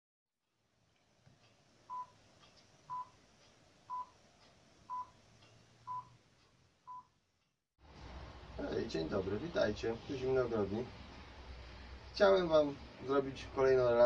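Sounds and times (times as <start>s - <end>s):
faint hiss: 7.8s - 14.0s.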